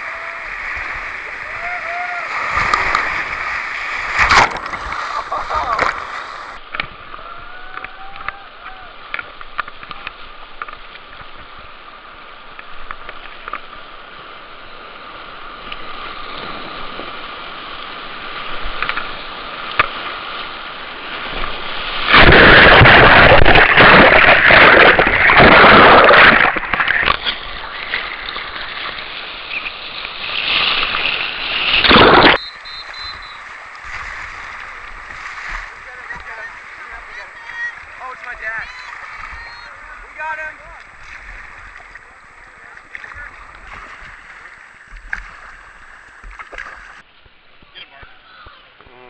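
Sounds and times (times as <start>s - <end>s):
rushing whitewater: 0.0s - 6.6s, 16.1s - 47.0s
water splashing over microphone: 0.0s - 8.1s, 15.5s - 47.1s.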